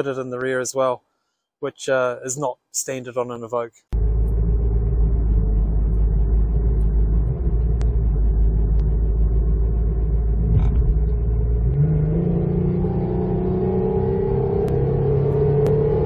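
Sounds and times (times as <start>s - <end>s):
car engine rumbling at full throttle: 3.9s - 16.0s.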